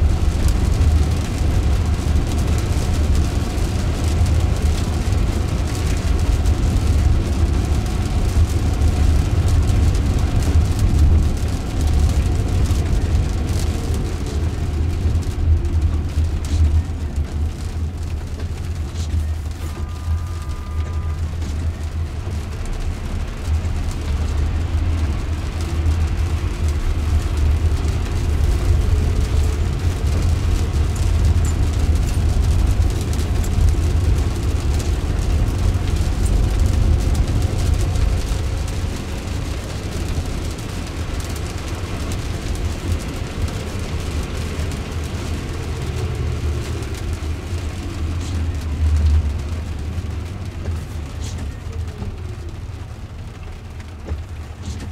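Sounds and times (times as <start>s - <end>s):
car cabin road rumble: 0.0s - 54.9s
tyre hiss on wet road: 18.5s - 54.9s.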